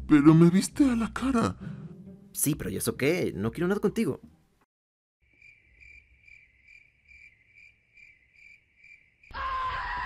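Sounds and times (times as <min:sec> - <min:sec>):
cricket chirping: 0:05.2 - 0:09.7.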